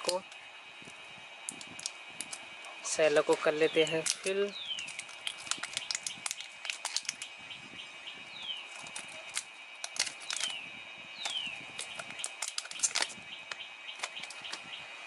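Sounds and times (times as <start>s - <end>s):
plastic shrink wrap crinkling: 3.3s - 7.3s, 8.6s - 10.6s, 11.2s - 14.6s.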